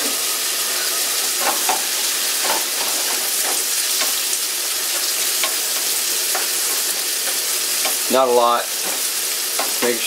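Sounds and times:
bacon sizzling in a skillet: 0.0s - 10.0s
utensil scraping a pan: 0.7s - 8.1s.

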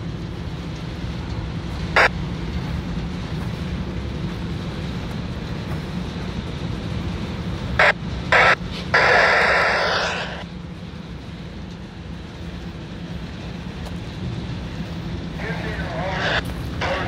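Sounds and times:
low engine drone: 0.0s - 17.0s
bursts of hissing: 7.8s - 10.4s.

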